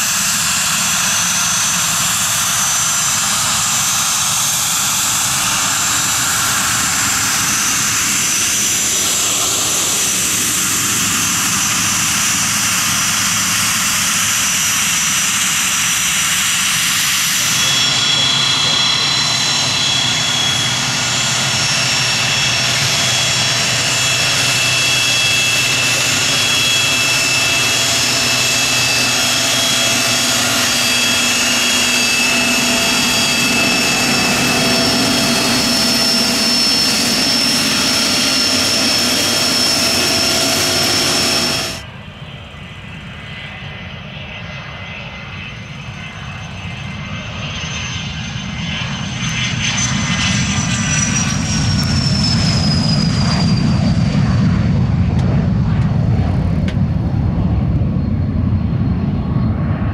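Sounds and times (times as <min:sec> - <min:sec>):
high whistle of jet engines: 0:00.0 - 0:59.9
jet engines taxiing: 0:00.0 - 0:59.9.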